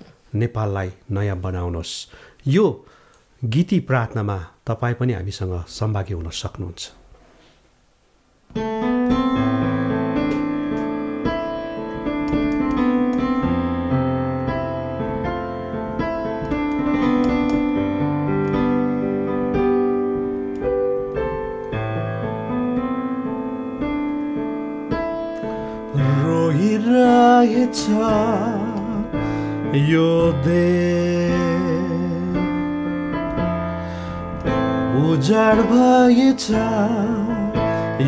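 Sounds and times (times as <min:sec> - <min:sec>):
slow piano introduction: 0:08.4 - 0:38.0.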